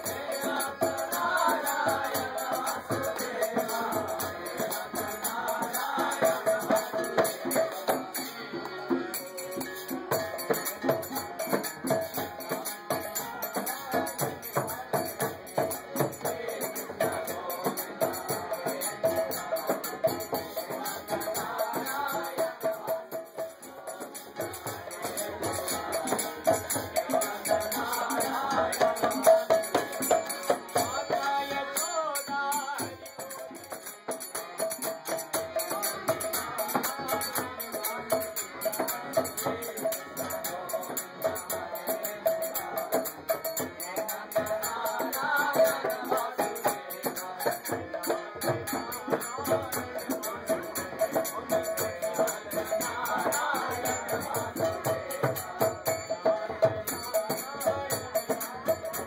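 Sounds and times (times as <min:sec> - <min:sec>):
voices chanting: 0:00.0 - 0:32.9, 0:50.2 - 0:56.2
jangling hand percussion: 0:00.0 - 0:59.0.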